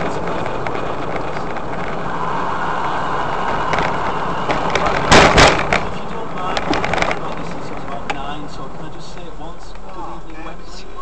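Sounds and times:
road and engine noise in car: 0.0s - 11.0s.

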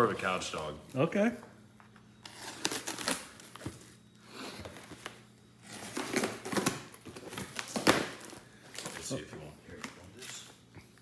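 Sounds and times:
packing tape tearing: 2.2s - 3.7s, 4.7s - 9.0s.

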